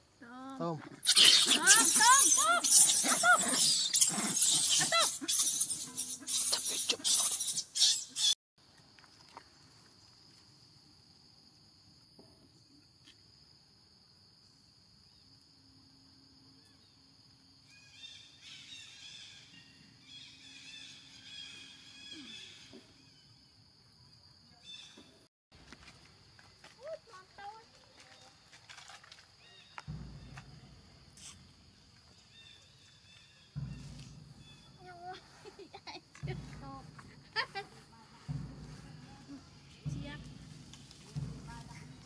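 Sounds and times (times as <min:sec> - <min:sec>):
high chirping calls: 0:01.1 - 0:08.4
high insect drone: 0:09.0 - 0:24.8, 0:25.7 - 0:42.0.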